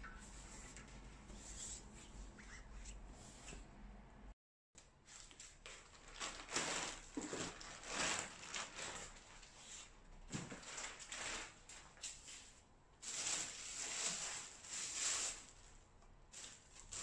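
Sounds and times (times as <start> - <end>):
plastic bags rustling: 5.0 - 17.0.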